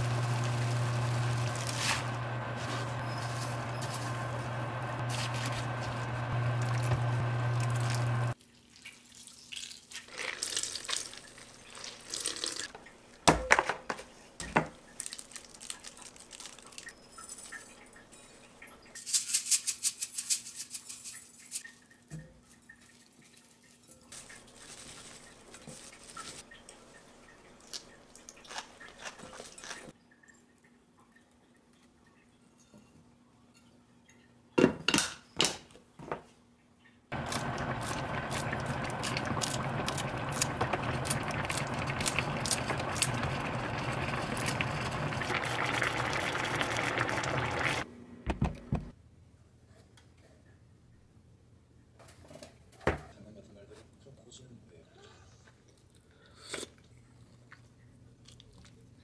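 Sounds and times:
induction hob humming: 0:00.0 - 0:08.4, 0:37.1 - 0:48.9
pot of water hissing: 0:00.0 - 0:08.4, 0:37.1 - 0:47.8
hands mixing food in glass bowl: 0:01.2 - 0:12.3.

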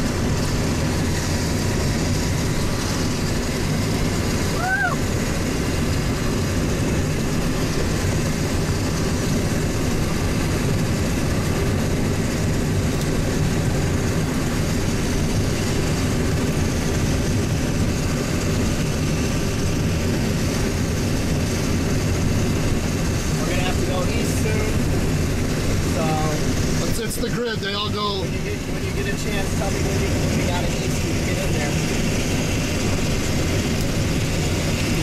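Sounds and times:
road and engine noise: 0:00.0 - 0:35.0.

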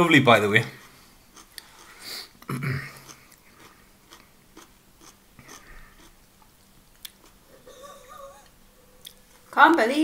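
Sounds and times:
person chewing: 0:00.6 - 0:09.5
low throat hum: 0:02.5 - 0:03.1
small mouth clicks: 0:07.0 - 0:07.4.

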